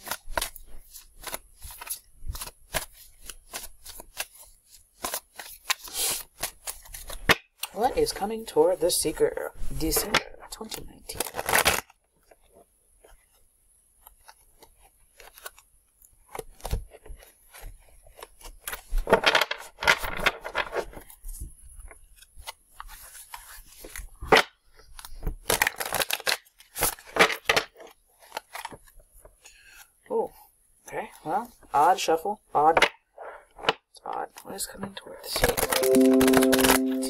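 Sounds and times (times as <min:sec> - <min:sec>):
cards being shuffled: 0:00.0 - 0:08.0, 0:09.6 - 0:13.4, 0:14.0 - 0:29.9, 0:35.3 - 0:37.0.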